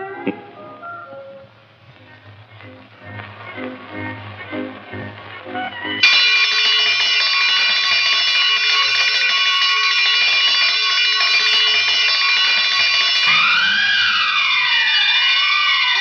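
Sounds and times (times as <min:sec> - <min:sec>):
electric alarm bell ringing: 0:05.8 - 0:16.0.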